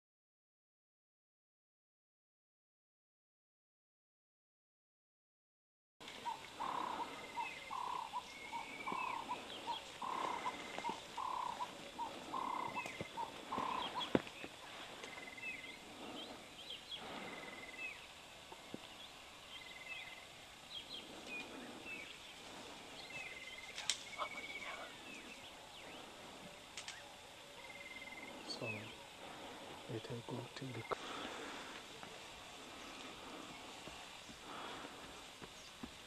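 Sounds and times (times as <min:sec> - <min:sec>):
short repeated animal calls: 0:06.1 - 0:14.2
high trilled animal call: 0:06.2 - 0:14.1.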